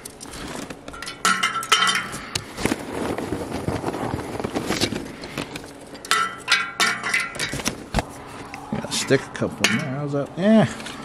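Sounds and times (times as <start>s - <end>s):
charcoal clattering on steel: 0.0s - 3.8s, 4.8s - 8.0s
paper bag rustling: 2.6s - 6.0s.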